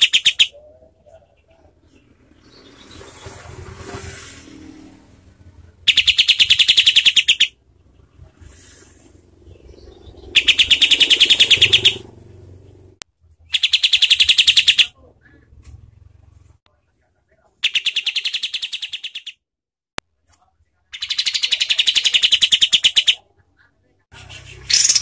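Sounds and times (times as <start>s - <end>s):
bird harsh rapid calls: 0.0s - 4.1s, 5.8s - 12.8s, 13.5s - 15.0s, 17.6s - 19.4s, 20.9s - 23.2s, 24.2s - 25.0s.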